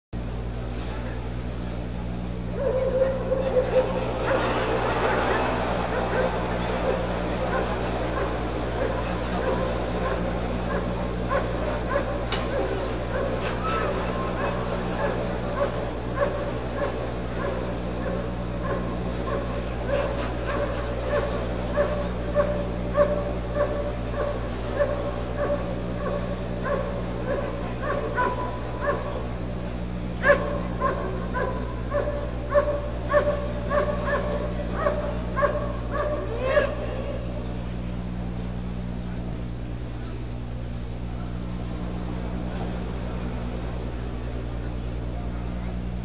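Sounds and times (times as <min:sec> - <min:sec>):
dog barking: 0:02.5 - 0:29.4, 0:30.2 - 0:36.9.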